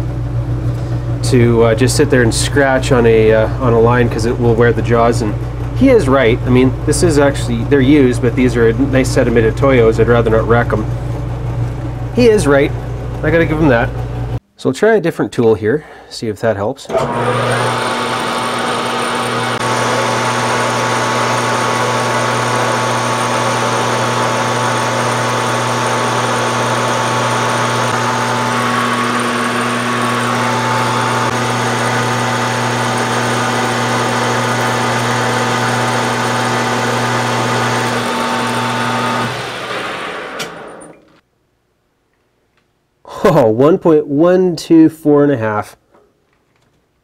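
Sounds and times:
metal lathe running: 1.7 - 14.3, 16.9 - 41.2
lathe winding down: 16.9 - 41.2.

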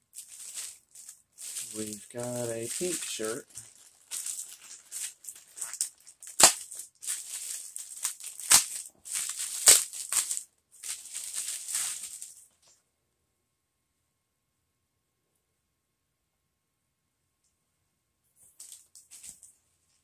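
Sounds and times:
plastic bag crinkling: 0.1 - 12.6.

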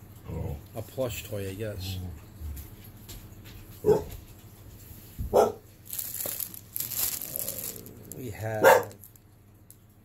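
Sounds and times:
dog barking: 3.8 - 4.2, 5.3 - 5.7, 8.6 - 9.0
plastic wrap crinkling: 5.3 - 9.8.

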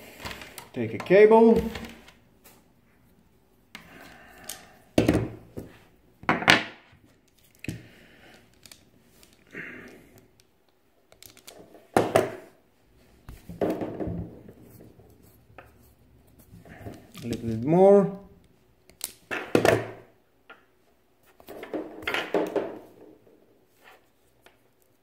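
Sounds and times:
soft scraping and handling: 14.4 - 17.7, 23.6 - 25.0.

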